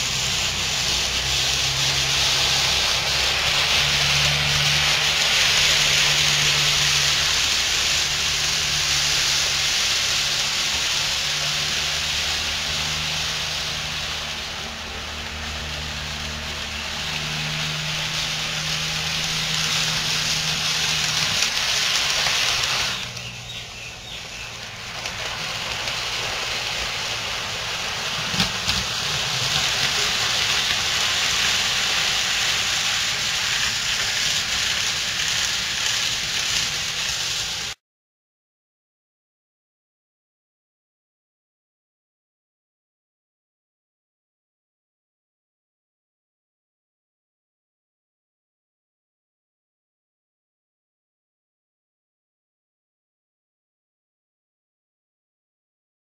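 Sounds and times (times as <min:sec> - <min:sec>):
low motor hum: 0:00.0 - 0:37.8
model train wheels hissing: 0:00.0 - 0:37.8.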